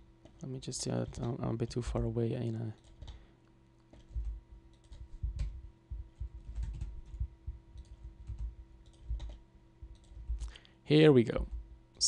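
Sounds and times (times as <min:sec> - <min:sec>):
faint steady hum: 0:00.0 - 0:12.0
keyboard keys tapping: 0:03.9 - 0:10.5.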